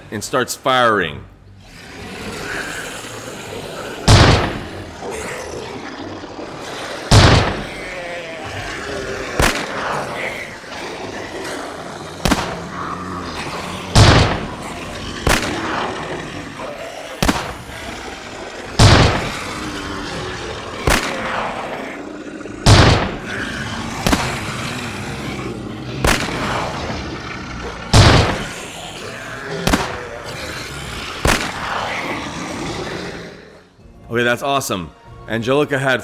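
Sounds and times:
musket gunshots: 4.1 - 4.8, 7.1 - 7.8, 9.4 - 10.0, 12.2 - 12.6, 13.9 - 15.9, 17.2 - 17.6, 18.8 - 19.4, 20.8 - 21.4, 22.6 - 23.3, 24.0 - 24.4, 26.0 - 26.6, 27.9 - 28.6, 29.6 - 30.1, 31.2 - 31.7.

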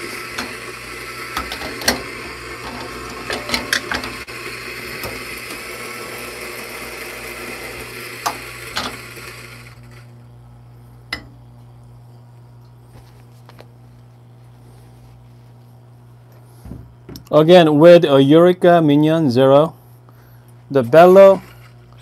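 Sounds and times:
coffee grinder whirring: 0.0 - 10.3.

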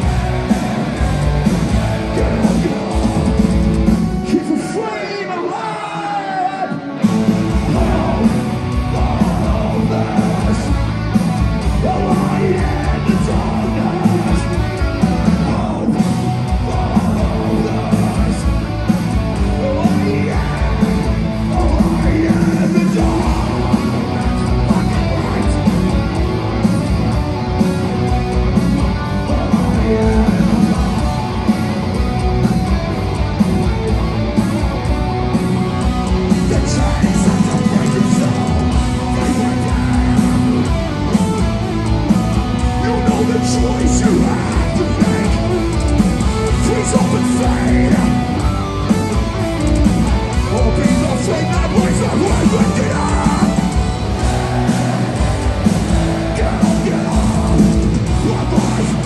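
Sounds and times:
distorted electric guitars: 0.0 - 59.0
pounding drums: 7.0 - 59.0
shouted vocals: 50.2 - 59.0.

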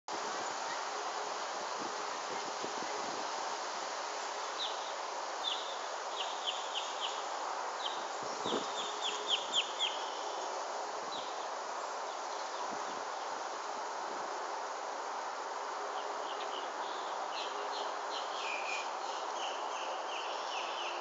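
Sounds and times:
steady outdoor hiss: 0.1 - 21.0
songbird singing: 4.6 - 13.4, 16.0 - 21.0.

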